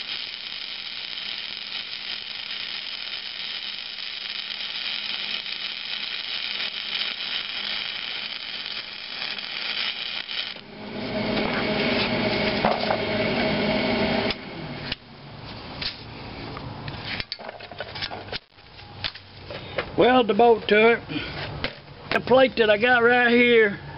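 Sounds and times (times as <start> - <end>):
welder hum: 0.0 - 15.0
welding arc crackling: 0.0 - 15.0, 18.4 - 18.8.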